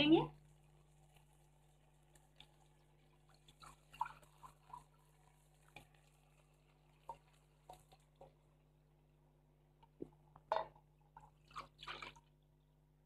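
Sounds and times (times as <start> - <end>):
water splashing and dripping: 0.8 - 8.5, 10.0 - 12.3.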